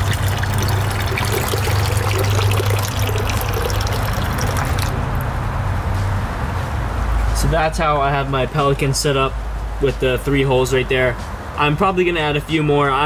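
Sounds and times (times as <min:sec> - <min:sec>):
water splashing into pond: 0:00.0 - 0:05.3.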